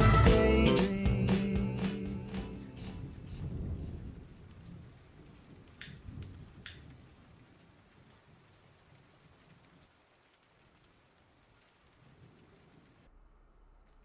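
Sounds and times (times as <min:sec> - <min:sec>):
faint steady rain: 0:00.0 - 0:14.0
low rumble: 0:01.2 - 0:07.0, 0:12.9 - 0:14.0.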